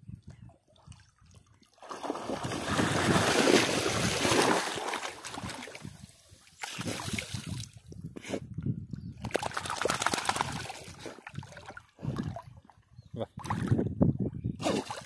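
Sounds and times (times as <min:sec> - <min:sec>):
dog wading through water: 0:00.6 - 0:05.9.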